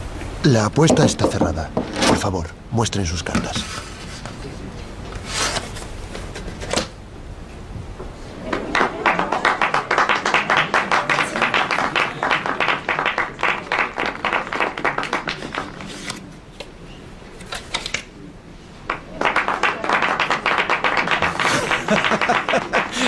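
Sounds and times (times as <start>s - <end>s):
crowd applauding: 8.4s - 16.0s, 18.9s - 23.0s.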